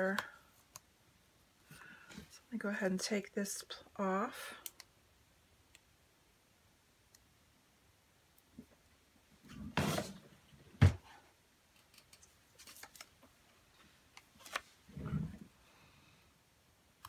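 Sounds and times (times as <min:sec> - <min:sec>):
paper rustling: 0:11.8 - 0:13.3.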